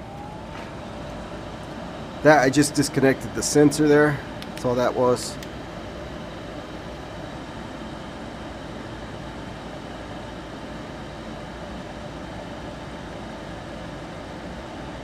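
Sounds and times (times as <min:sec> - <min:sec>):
inducer motor hum: 0:00.0 - 0:11.1.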